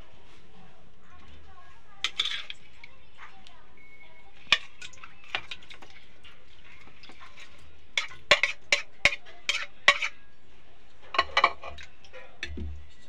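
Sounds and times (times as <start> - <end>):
spoon tapping pan: 8.0 - 10.1, 11.2 - 11.8.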